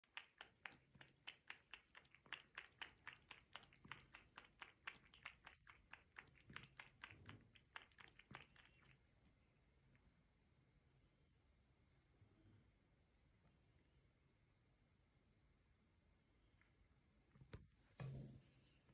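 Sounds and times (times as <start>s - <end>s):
cat lapping water: 0.0s - 9.4s.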